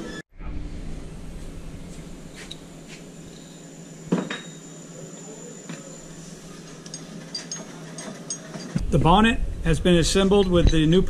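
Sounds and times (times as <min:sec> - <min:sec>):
metal parts clinking: 0:06.6 - 0:08.8.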